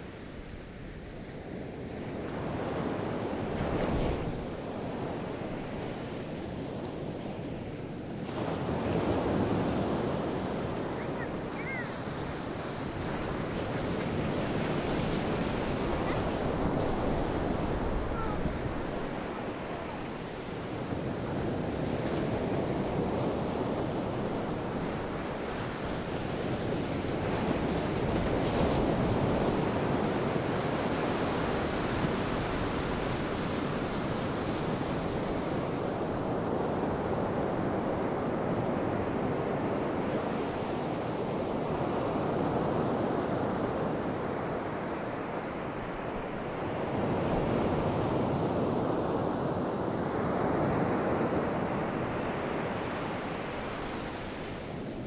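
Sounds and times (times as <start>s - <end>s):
ocean waves breaking on beach: 0.0s - 55.0s.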